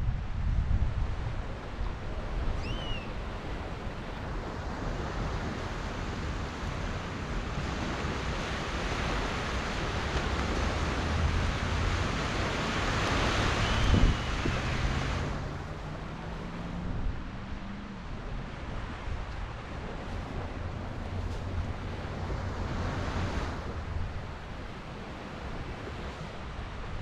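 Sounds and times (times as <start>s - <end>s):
wind rumbling on microphone: 0.0s - 27.0s
surf washing onto beach: 1.0s - 27.0s.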